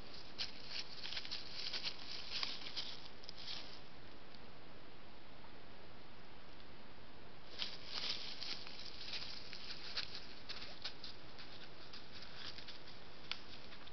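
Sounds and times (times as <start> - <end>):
footsteps crunching dry leaves: 0.0 - 3.9, 7.5 - 13.8.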